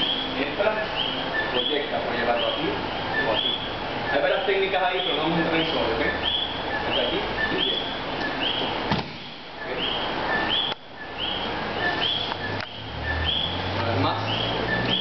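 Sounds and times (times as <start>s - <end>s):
high rising and falling chirp: 0.0s - 15.0s
sharp knock: 8.9s - 9.3s.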